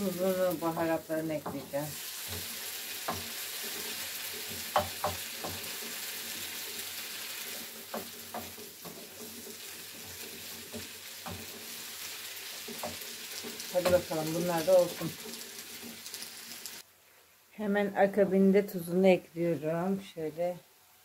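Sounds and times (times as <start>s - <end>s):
wooden spoon knocking and scraping pan: 0.0s - 6.8s, 7.4s - 16.2s
vegetables sizzling in a frying pan: 0.0s - 16.9s.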